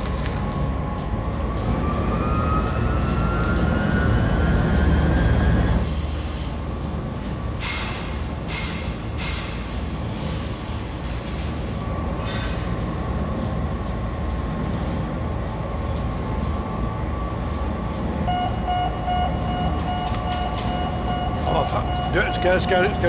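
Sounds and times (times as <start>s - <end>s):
faint machine whine: 0.0s - 23.0s
machinery rumble: 0.0s - 23.0s
pulsing electronic alarm beeping: 18.2s - 23.0s.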